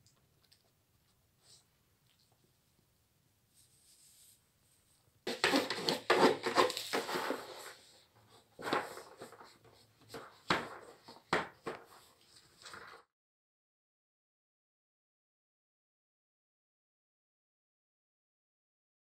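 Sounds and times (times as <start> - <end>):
dog nosing cardboard box: 5.3 - 11.3.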